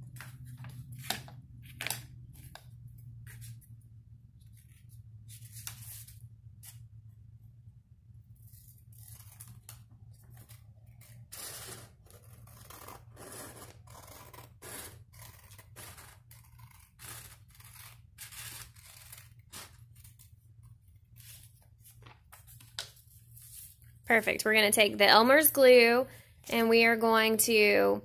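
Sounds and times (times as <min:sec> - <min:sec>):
scissors cutting paper: 0:08.4 - 0:21.6.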